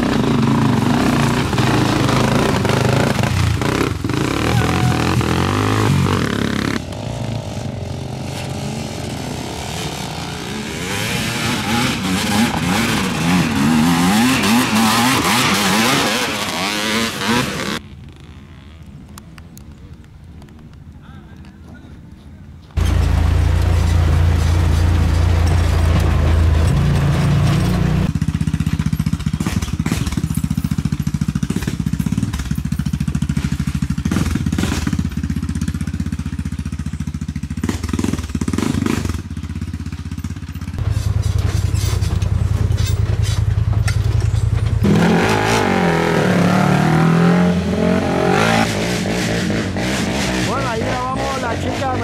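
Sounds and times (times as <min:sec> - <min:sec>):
atv engines running: 0:00.0 - 0:52.0
knocks and clatters: 0:22.7 - 0:36.0, 0:37.0 - 0:45.1.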